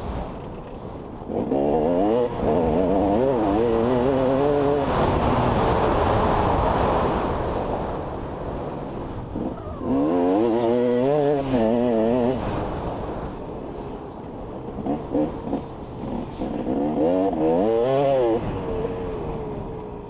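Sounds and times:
dirt bike engine revving: 1.2s - 7.0s, 9.3s - 12.8s, 14.7s - 19.7s.

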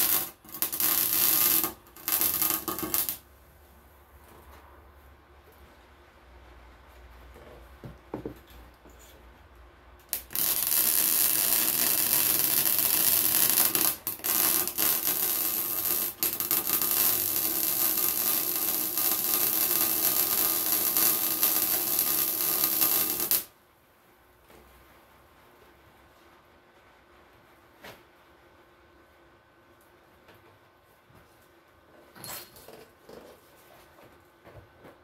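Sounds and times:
welding arc crackling and hissing: 0.0s - 3.2s, 10.1s - 23.5s.

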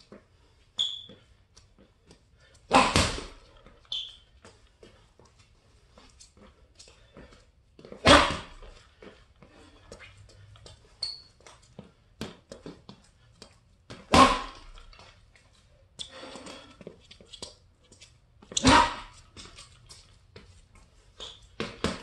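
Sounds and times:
footwork scuffs and taps: 0.0s - 22.0s
boxing gloves punching heavy bag: 2.7s - 3.4s, 8.0s - 8.7s, 13.9s - 14.8s, 18.6s - 19.2s, 21.6s - 22.0s.

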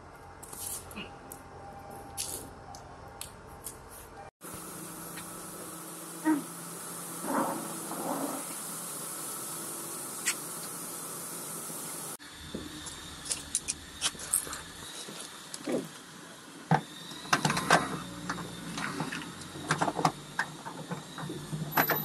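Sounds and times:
steady hiss: 4.5s - 13.9s.

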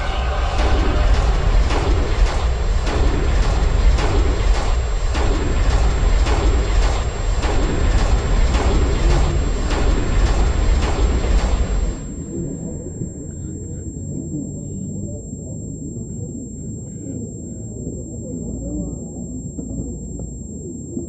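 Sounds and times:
sharp rhythmic strokes: 0.0s - 14.0s
deep steady rumble: 0.0s - 21.0s.

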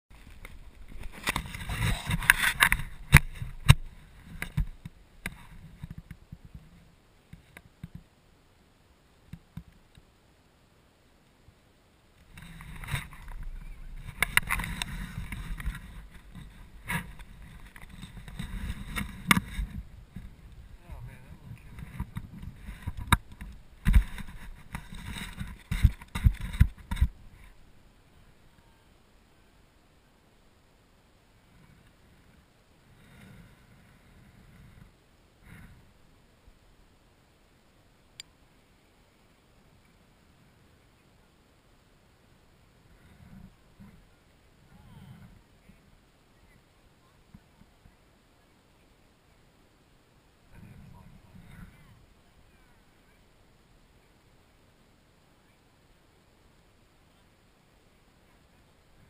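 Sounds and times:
scraping on snow: 0.1s - 4.8s, 12.3s - 27.6s
faint clicks: 9.3s - 10.1s.

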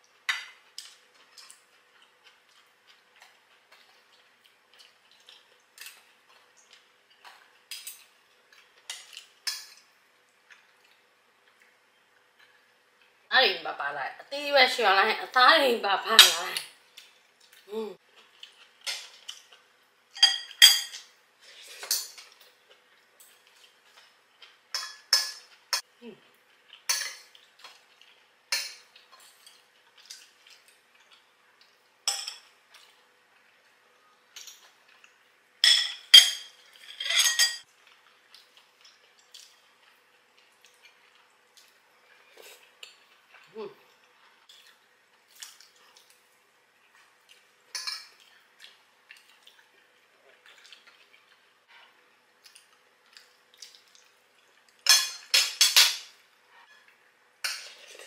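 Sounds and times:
cutlery clinking on ceramic dishes: 20.2s - 21.1s, 26.9s - 27.3s, 32.1s - 32.5s, 35.6s - 37.6s, 47.7s - 48.2s, 54.8s - 56.1s.

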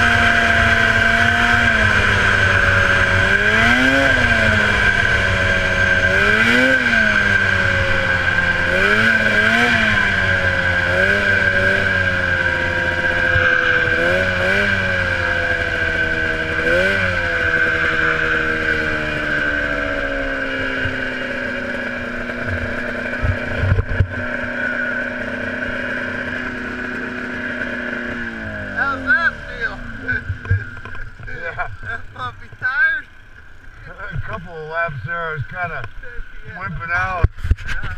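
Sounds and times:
snowmobile engine revving: 0.0s - 33.1s
steady high whine: 0.0s - 37.9s.

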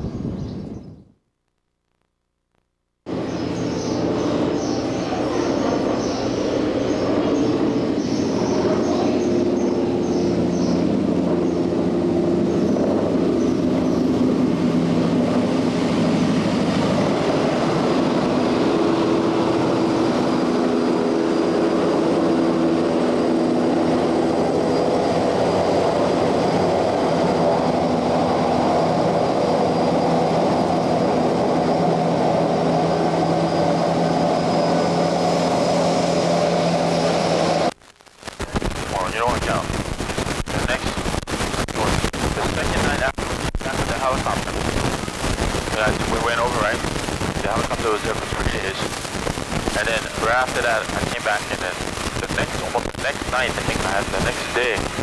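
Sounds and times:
helicopter engine hum: 3.1s - 37.8s, 38.4s - 55.0s
helicopter rotor chop: 3.1s - 37.8s, 38.4s - 55.0s.

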